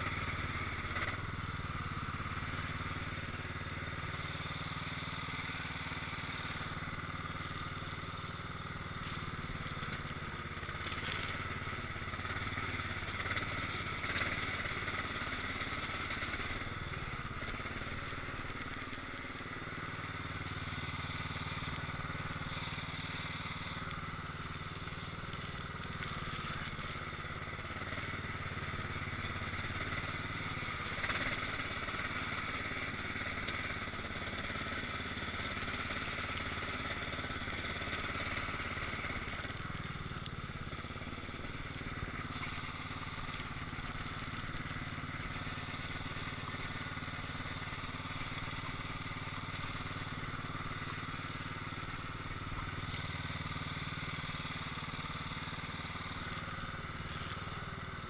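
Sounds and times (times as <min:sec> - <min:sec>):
lawn tractor engine running: 0:00.0 - 0:58.0
blade pushing snow: 0:08.9 - 0:47.0.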